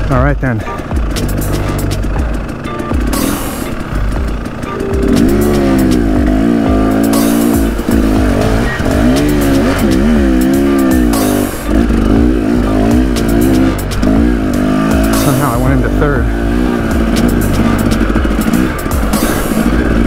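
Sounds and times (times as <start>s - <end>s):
dirt bike engine revving: 1.0s - 20.0s.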